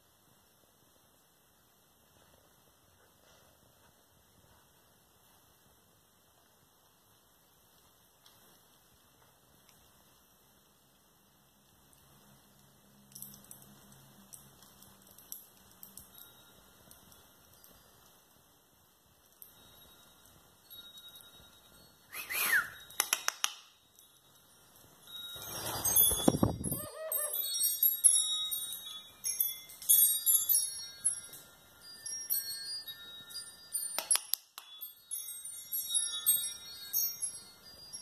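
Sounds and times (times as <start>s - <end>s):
wind chimes tinkling: 11.8s - 38.0s.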